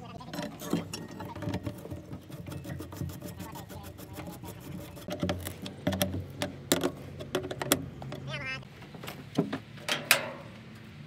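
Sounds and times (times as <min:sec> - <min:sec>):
spanner clicking on bolts: 0:09.9 - 0:10.5.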